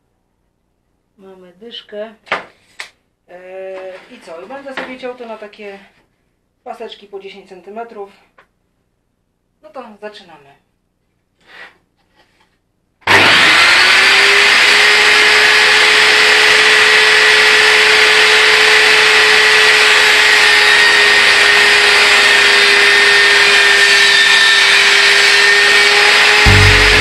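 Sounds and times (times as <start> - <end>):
table saw motor whine: 13.0 - 27.0.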